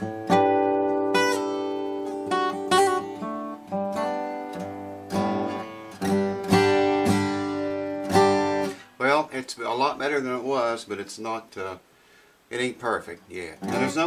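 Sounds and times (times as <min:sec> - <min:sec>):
acoustic guitar strummed chords: 0:00.0 - 0:09.3, 0:13.4 - 0:14.0.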